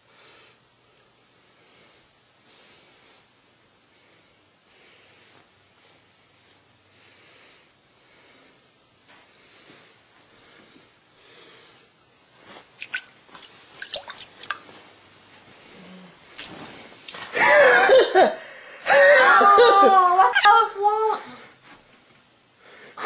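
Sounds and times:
woman wailing: 17.4s - 21.4s.

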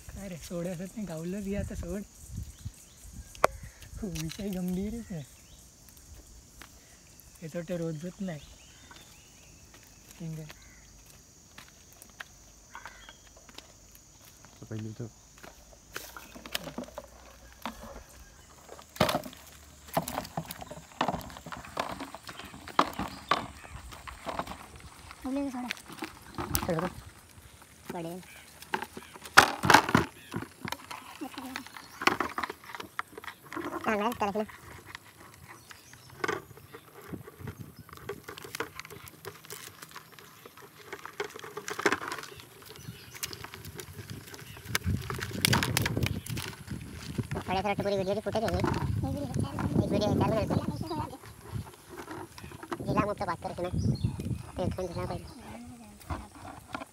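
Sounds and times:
crab net knocking and rattling: 16.0s - 27.2s, 27.8s - 55.3s.

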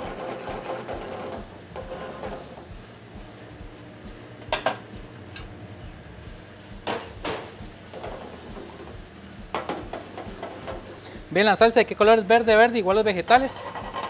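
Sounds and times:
low steady hum: 2.4s - 9.9s.

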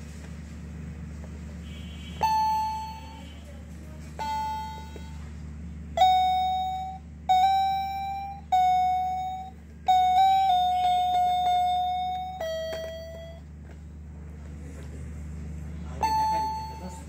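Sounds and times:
toy keyboard notes: 2.2s - 5.3s, 5.9s - 13.5s, 16.0s - 17.0s.

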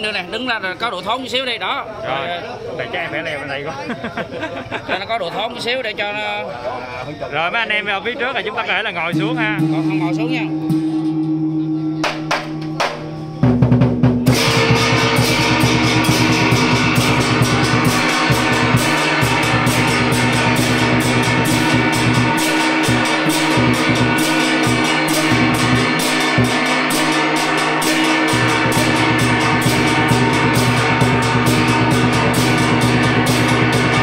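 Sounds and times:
barrel drum beaten rapidly: 9.1s - 34.0s
gongs ringing: 9.1s - 34.0s.

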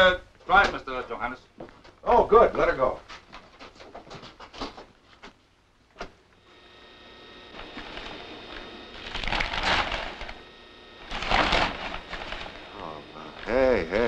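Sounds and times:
motor humming: 6.4s - 14.0s.

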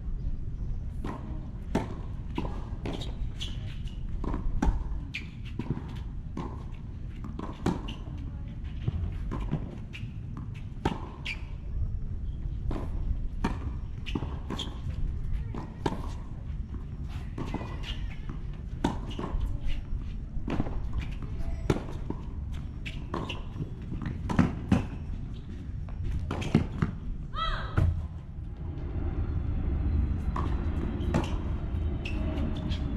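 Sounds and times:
tennis ball bouncing: 4.1s - 8.0s, 12.6s - 16.8s, 17.4s - 19.5s, 20.4s - 25.0s.

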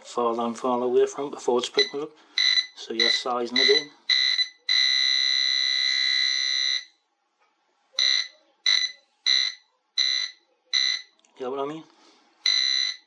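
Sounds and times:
metal detector beeps: 1.8s - 5.3s, 8.0s - 11.1s, 12.5s - 13.0s
metal detector steady tone: 1.8s - 6.1s, 8.0s - 11.1s.

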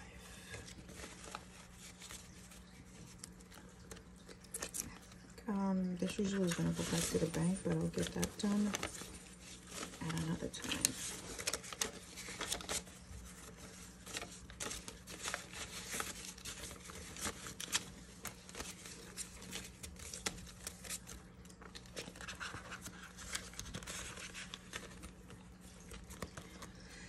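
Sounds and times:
banknotes rustling and flicking: 0.3s - 27.0s
plastic pouch crinkling: 0.7s - 26.9s.

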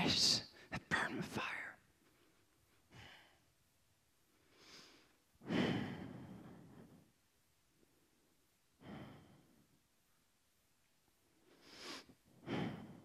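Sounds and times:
man breathing in: 4.4s - 7.1s, 8.8s - 9.6s, 11.5s - 13.0s.

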